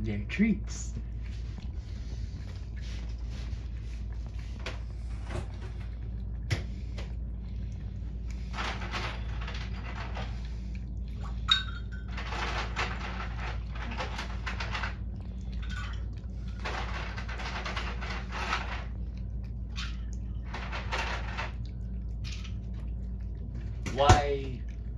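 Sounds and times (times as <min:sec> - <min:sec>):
cats chewing and licking: 0:00.0 - 0:24.9
low hum: 0:00.0 - 0:24.9
clink against metal bowl: 0:11.5 - 0:12.0.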